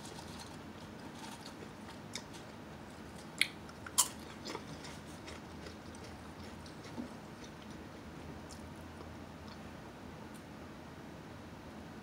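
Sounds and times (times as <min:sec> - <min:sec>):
chewing potato chips: 0:00.0 - 0:09.7.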